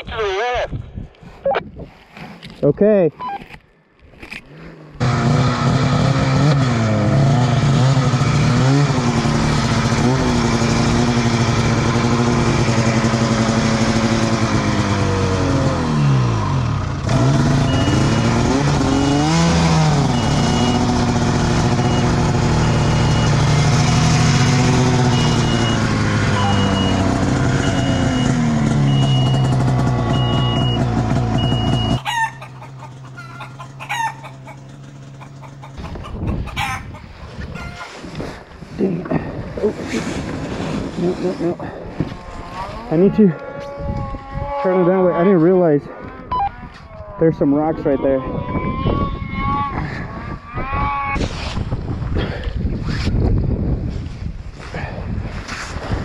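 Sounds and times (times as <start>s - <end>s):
high beep: 3.2s - 3.5s, 17.6s - 19.4s, 21.7s - 23.4s, 25.1s - 32.0s, 46.3s - 46.6s
snowmobile engine revving: 4.6s - 35.9s, 38.1s - 46.5s.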